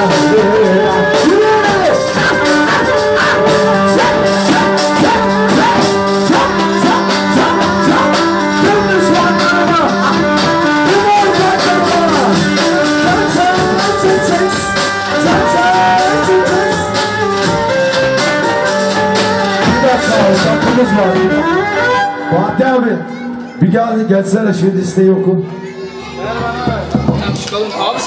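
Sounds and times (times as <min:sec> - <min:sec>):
bass drum beating: 0:00.0 - 0:22.0, 0:26.2 - 0:27.5
ornamented sliding melody: 0:00.0 - 0:23.7.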